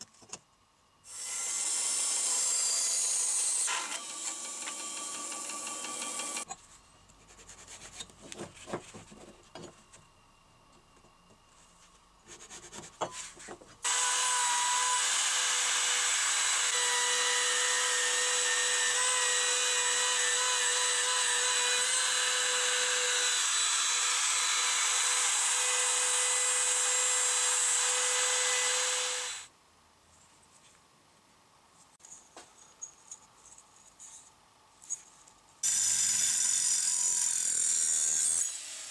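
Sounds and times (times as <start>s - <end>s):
band saw cutting: 1.1s - 6.5s, 13.8s - 29.5s, 35.6s - 38.9s
wood router whining: 1.1s - 6.5s, 13.8s - 29.5s.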